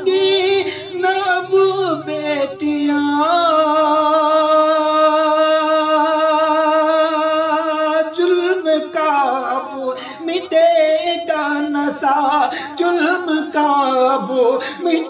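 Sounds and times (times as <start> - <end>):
man singing: 0.0 - 15.0.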